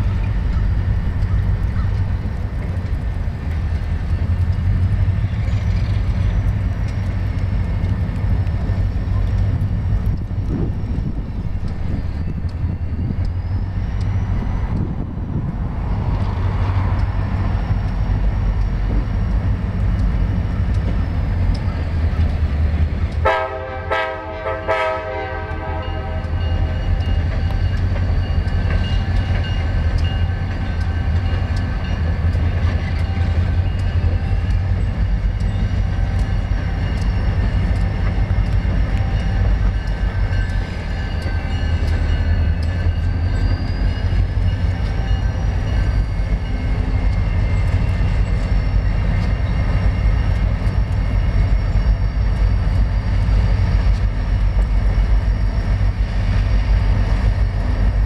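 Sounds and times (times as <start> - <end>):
diesel locomotives rumbling: 0.0 - 58.0
locomotive horn: 23.2 - 27.0.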